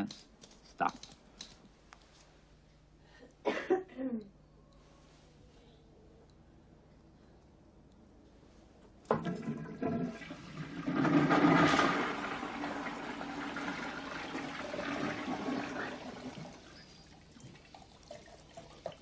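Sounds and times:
toilet flush water rushing: 0:09.1 - 0:19.0.

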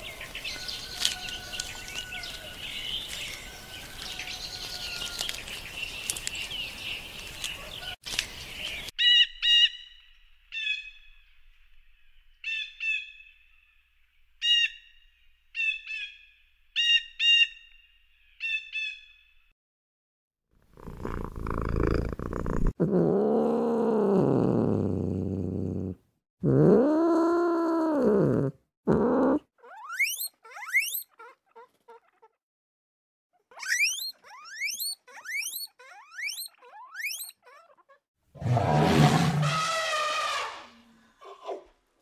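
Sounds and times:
deep animal calls: 0:22.6 - 0:32.4, 0:33.5 - 0:41.7
short rising chirps: 0:29.8 - 0:31.0, 0:33.6 - 0:37.4.

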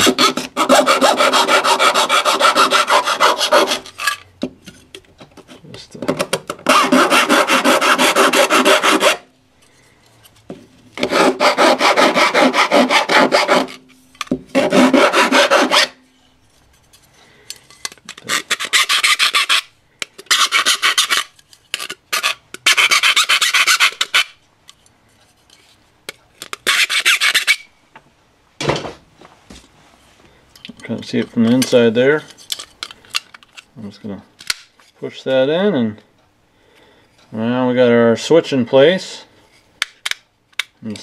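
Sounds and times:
file rasping on metal: 0:00.0 - 0:04.2, 0:06.7 - 0:09.3, 0:11.0 - 0:13.8, 0:14.5 - 0:16.0, 0:18.3 - 0:19.7, 0:20.3 - 0:21.3, 0:22.1 - 0:24.3.

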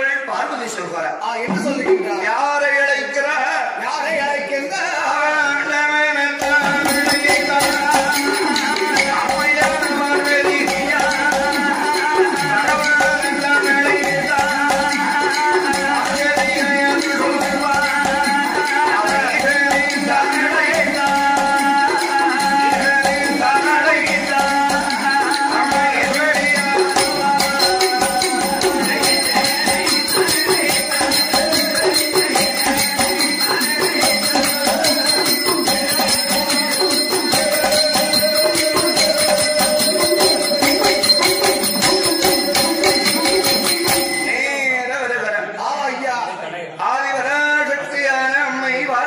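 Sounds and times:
rapid percussion strokes: 0:01.4 - 0:02.6, 0:06.4 - 0:44.8
jingling bells: 0:06.4 - 0:44.8
wavering melody line: 0:06.9 - 0:44.6.

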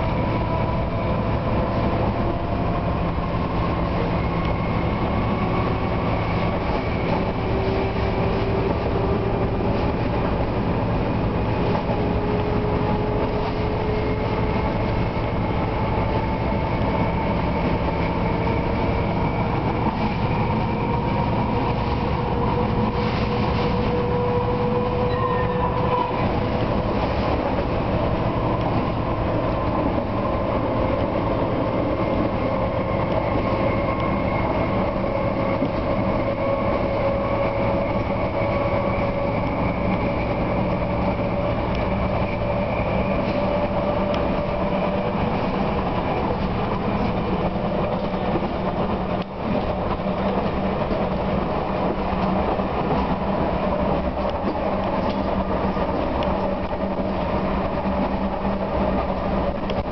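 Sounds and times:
locomotive engine drone: 0:00.0 - 0:59.9
wheels running on rails: 0:00.0 - 0:59.9.

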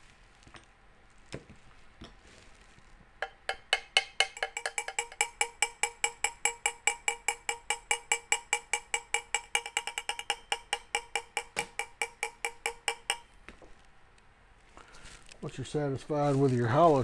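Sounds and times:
hammer tapping on brass tube: 0:03.2 - 0:13.4.

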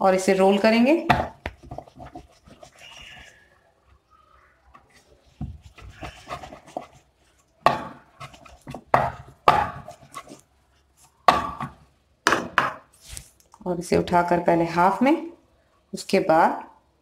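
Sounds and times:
rolling pin on wooden board: 0:01.0 - 0:03.3, 0:04.8 - 0:10.4.

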